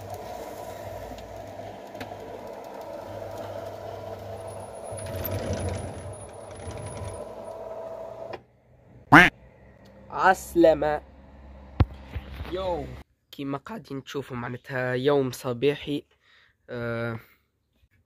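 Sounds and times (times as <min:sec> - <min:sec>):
sliding window rattling open: 0:00.0 - 0:08.3
steady mechanical hum: 0:00.0 - 0:13.0.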